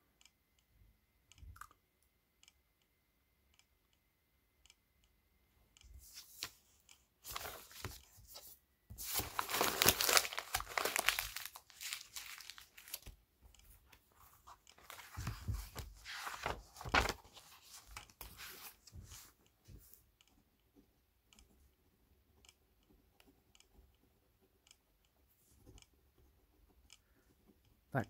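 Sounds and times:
faint light ticks: 1.3s - 2.9s, 24.6s - 26.0s
paper rustling and tearing: 7.2s - 13.1s, 14.8s - 18.8s.

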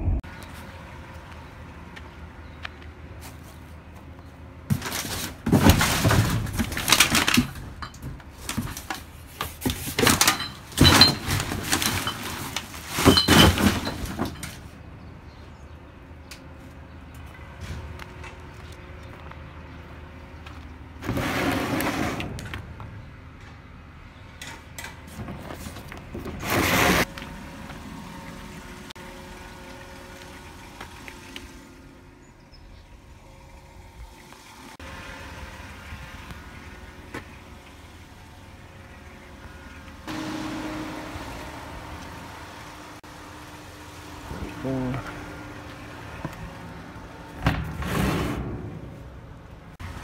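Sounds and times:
rummaging through trash: 4.6s - 14.8s.

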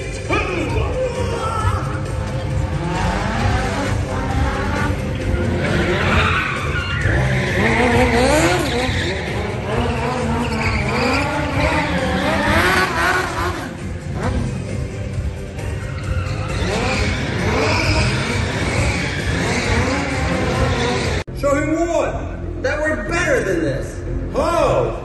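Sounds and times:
car engines revving: 0.0s - 21.3s
tyres squealing: 5.2s - 13.4s.

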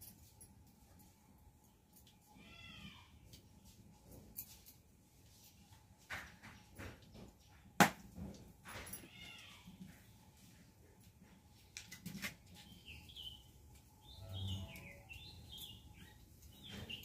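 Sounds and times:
animal cry: 2.4s - 3.2s.

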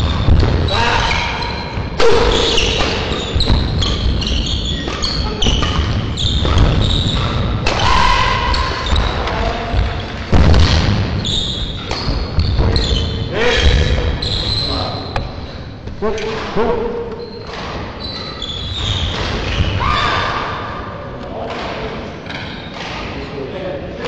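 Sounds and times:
shoes squeaking on court floor: 1.0s - 7.6s, 8.4s - 10.3s, 11.2s - 19.8s
racket hitting shuttlecock: 2.0s - 10.9s.

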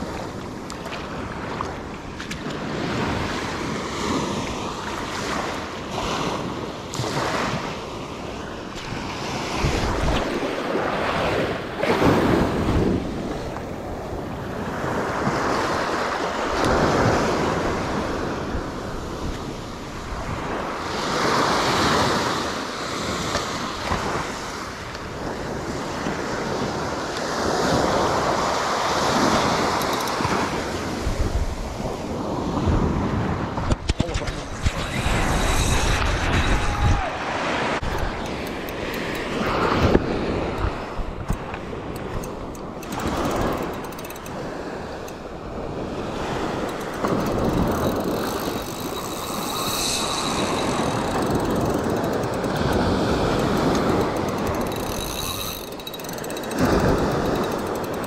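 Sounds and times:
small waves breaking on sand: 0.0s - 37.9s
wind buffeting microphone: 0.0s - 58.0s.

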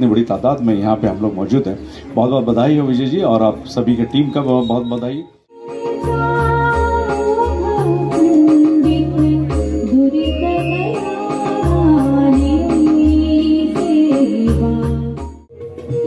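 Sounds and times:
keyboard accompaniment: 3.1s - 16.0s
woman singing into microphone: 5.5s - 16.0s.

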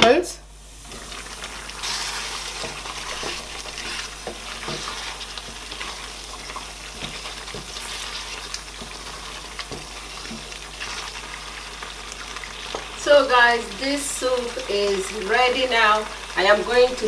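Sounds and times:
simmering soup hiss: 0.5s - 17.0s
wooden spoon stirring soup: 0.9s - 13.0s.

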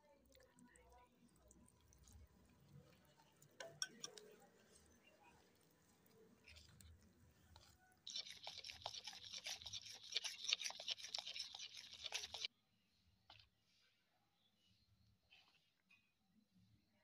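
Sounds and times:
spoon beating batter in plastic bowl: 1.4s - 12.5s.

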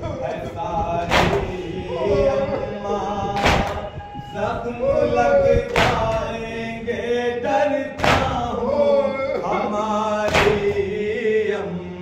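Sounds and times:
men chanting together: 0.0s - 12.0s
unison chest-beating: 1.1s - 1.8s, 3.3s - 4.1s, 5.7s - 6.3s, 8.0s - 8.5s, 10.2s - 10.9s.

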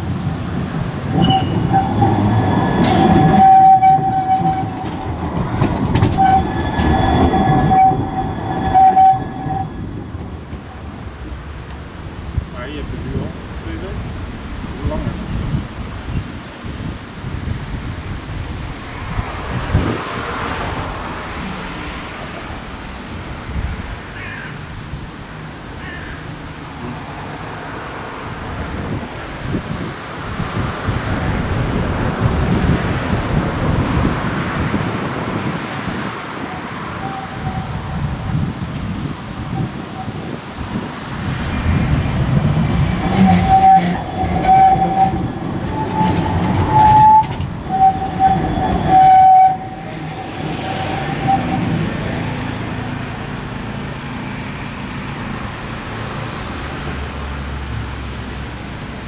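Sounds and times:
track clacks: 0.0s - 13.9s, 36.4s - 56.3s
wind on microphone: 0.0s - 25.2s, 28.2s - 52.9s
tram rumbling on rails: 0.0s - 59.0s
high-pitched wheel squeal: 1.1s - 10.6s, 36.9s - 38.1s, 42.7s - 52.3s.

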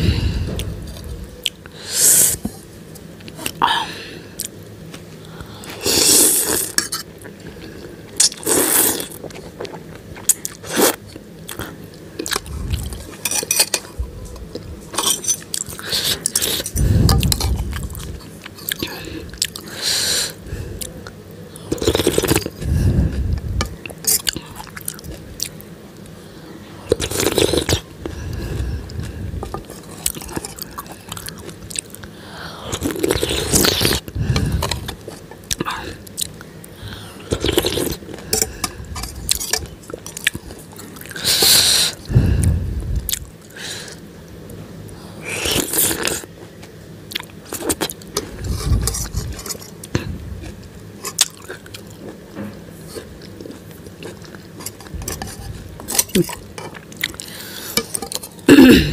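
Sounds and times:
noodles slurped and chewed: 26.9s - 31.8s, 32.7s - 35.7s, 37.2s - 42.1s.

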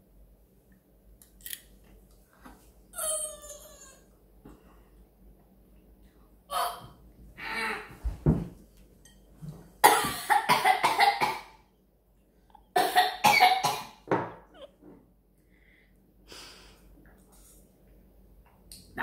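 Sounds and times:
boy coughing and spluttering: 9.8s - 11.5s.

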